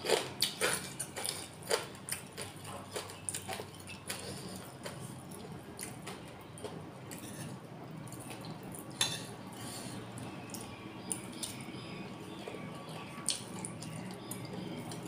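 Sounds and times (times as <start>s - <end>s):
person chewing: 0.0s - 7.3s.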